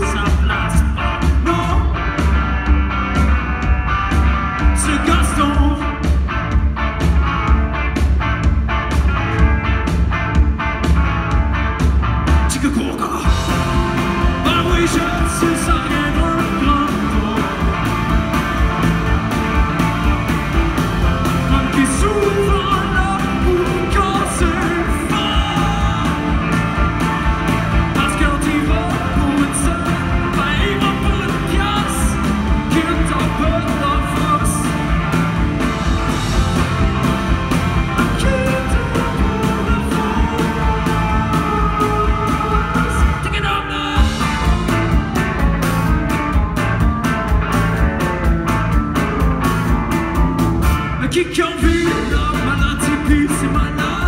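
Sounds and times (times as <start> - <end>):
man singing: 0.0 - 2.2, 4.6 - 6.2, 12.5 - 18.1, 21.3 - 26.9, 27.7 - 34.9, 37.8 - 44.6, 51.0 - 54.0
electric guitars: 0.0 - 54.0
drum beat: 13.3 - 50.9.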